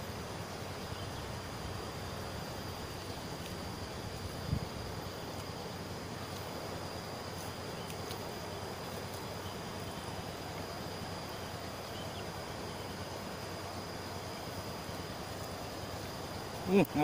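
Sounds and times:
high-pitched insect call: 0:00.0 - 0:17.0
fast river rushing: 0:01.3 - 0:17.0
wind on microphone: 0:04.2 - 0:05.0.

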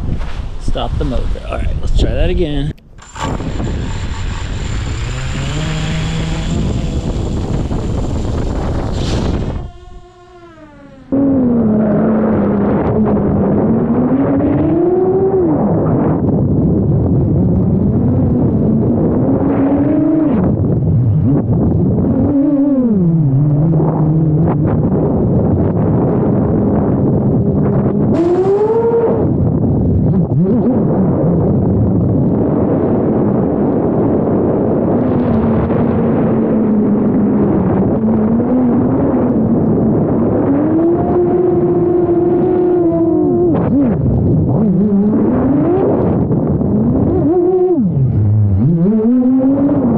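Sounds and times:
drone motors whining: 0:02.8 - 0:16.1, 0:27.4 - 0:29.6, 0:40.2 - 0:49.9
rushing noise: 0:03.0 - 0:11.8.

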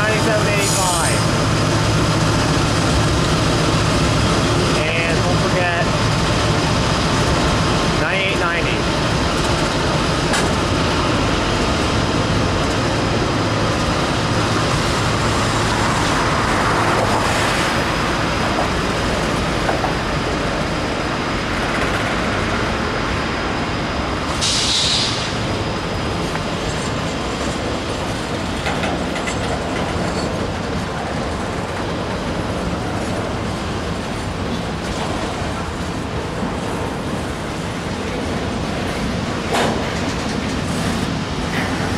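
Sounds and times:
train wheels rumbling on rail: 0:00.0 - 0:41.9
brief high hiss: 0:24.4 - 0:25.3.

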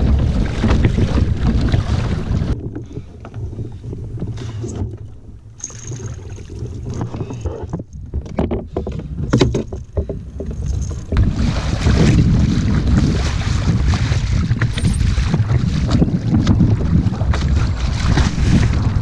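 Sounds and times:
rush of wind and water: 0:00.0 - 0:19.0
wind buffeting microphone: 0:00.0 - 0:19.0
fishing gear knocking and rattling: 0:02.5 - 0:11.3, 0:14.6 - 0:15.5.

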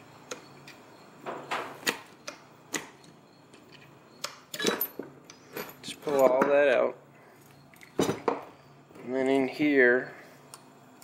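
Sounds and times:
metal parts clicking and knocking: 0:03.5 - 0:06.6.

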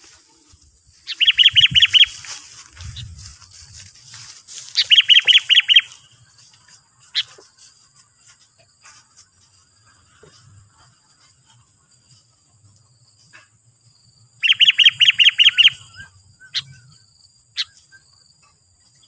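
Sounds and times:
bulbul calling: 0:01.1 - 0:03.2, 0:04.8 - 0:06.1, 0:14.4 - 0:17.0.

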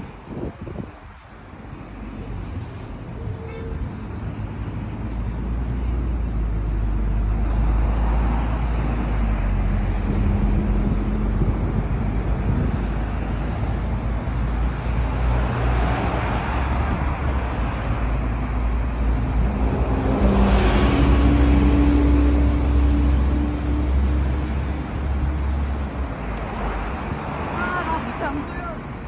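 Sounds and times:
road traffic rumble: 0:00.0 - 0:29.0
vehicle passing close by: 0:14.9 - 0:28.5.

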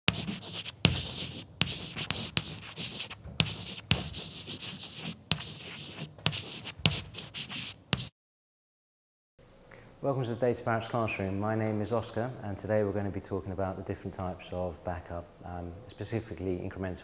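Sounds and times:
chalk scratching on blackboard: 0:00.1 - 0:08.1
chalk tapping: 0:00.1 - 0:08.1.

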